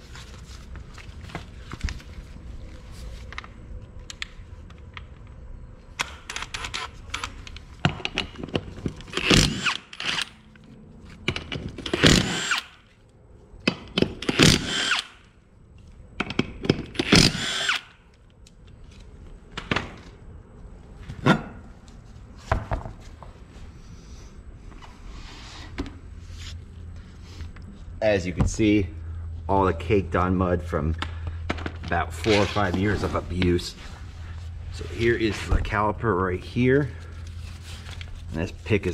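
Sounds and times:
power tool motor whining: 0:17.0 - 0:17.9.

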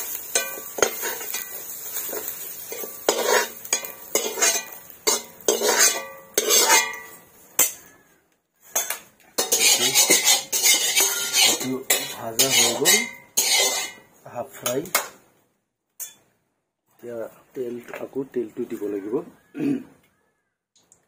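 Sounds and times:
metal ladle scraping a wok: 0:00.0 - 0:07.9, 0:08.6 - 0:14.1
steel dishes and utensils clattering: 0:00.0 - 0:07.9, 0:08.7 - 0:14.1.

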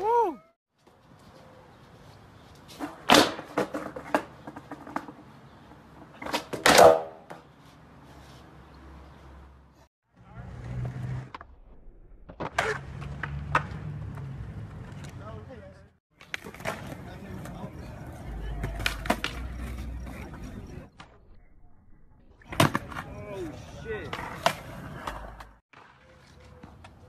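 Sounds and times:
skateboard slapping down: 0:02.8 - 0:05.1, 0:06.2 - 0:07.4, 0:12.3 - 0:13.8, 0:16.2 - 0:17.6, 0:18.5 - 0:20.3, 0:22.4 - 0:23.1
skateboard popping and clacking: 0:02.8 - 0:07.5, 0:12.3 - 0:15.2, 0:16.2 - 0:21.1.

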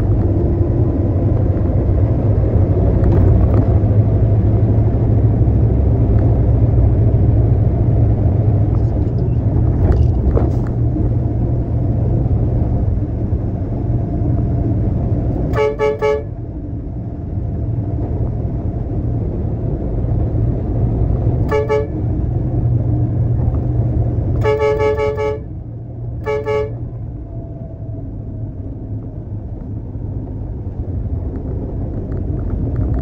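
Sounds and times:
truck engine rumble: 0:00.0 - 0:33.0
vehicle horn honking: 0:15.5 - 0:16.4, 0:21.4 - 0:22.1, 0:24.4 - 0:25.5, 0:26.2 - 0:26.8.

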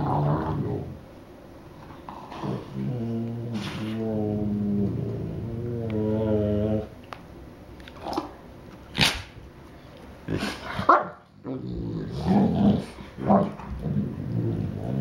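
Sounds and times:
dogs low play growls: 0:01.8 - 0:07.0, 0:10.2 - 0:15.0.

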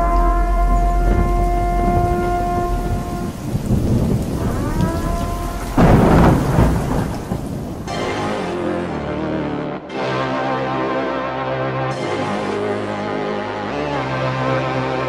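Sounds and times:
loud thunderclap: 0:00.0 - 0:08.5
rolling thunder: 0:00.0 - 0:08.6
rain falling: 0:00.0 - 0:09.4.

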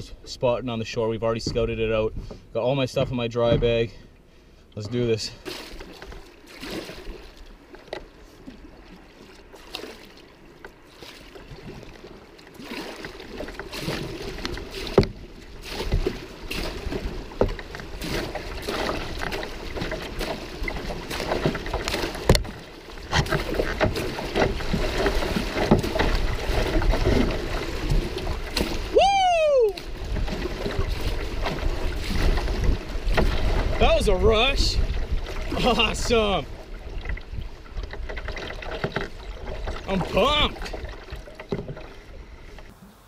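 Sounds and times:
sharp knocks on canoe: 0:01.3 - 0:02.4, 0:03.4 - 0:03.8, 0:12.7 - 0:28.9, 0:29.8 - 0:34.0.

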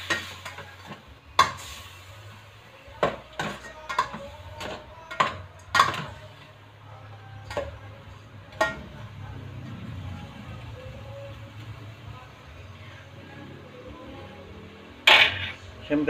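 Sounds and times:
chicken frying in a pot: 0:00.0 - 0:06.6.

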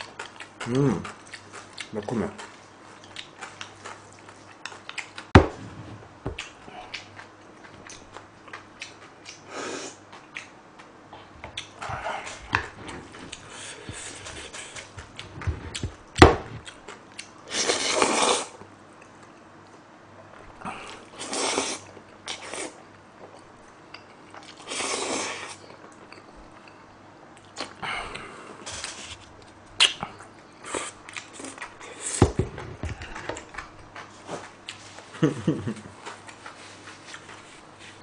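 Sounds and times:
wet chewing: 0:11.5 - 0:17.4.

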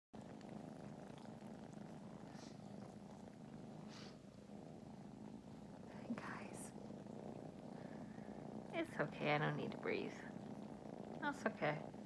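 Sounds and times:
kittens purring: 0:00.1 - 0:12.0
faint breathy puffs: 0:02.2 - 0:02.7, 0:03.8 - 0:04.3.

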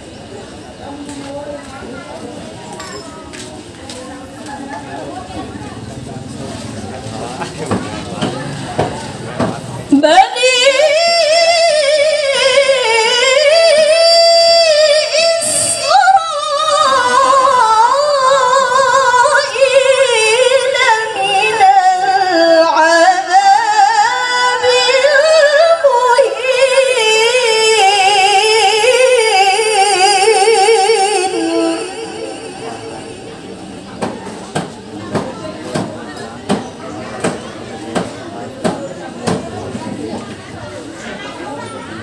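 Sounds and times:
woman chanting into a microphone: 0:09.9 - 0:33.5.

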